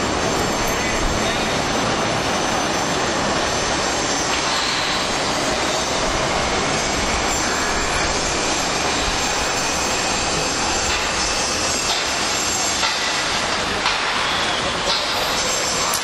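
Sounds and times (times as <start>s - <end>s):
machinery rushing noise: 0.0s - 16.0s.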